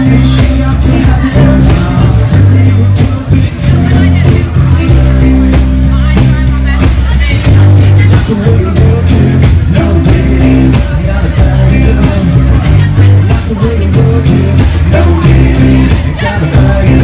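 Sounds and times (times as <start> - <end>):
electric bass notes: 0.0 - 17.0
live band playing r and b: 0.0 - 17.0.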